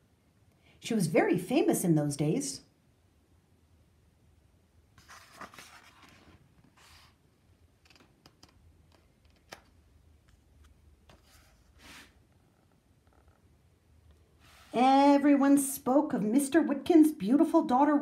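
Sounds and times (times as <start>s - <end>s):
book page turning: 5.0s - 7.2s, 7.8s - 12.2s.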